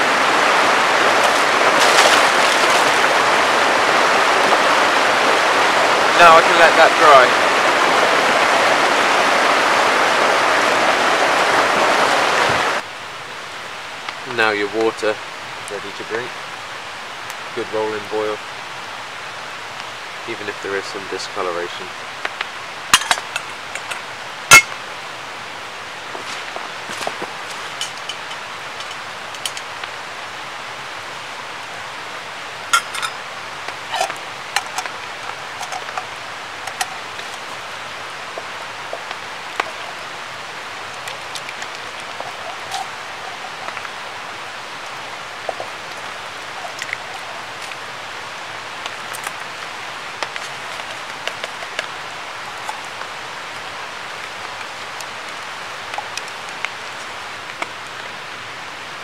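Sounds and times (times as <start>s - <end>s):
steady hiss: 0.0s - 59.0s
metal cookware clicks and clinks: 32.8s - 33.2s.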